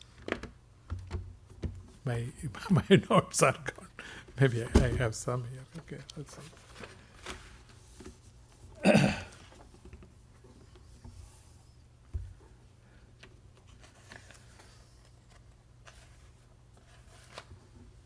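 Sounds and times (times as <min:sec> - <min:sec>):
paper pages rustling: 0:05.8 - 0:08.6, 0:13.5 - 0:18.0.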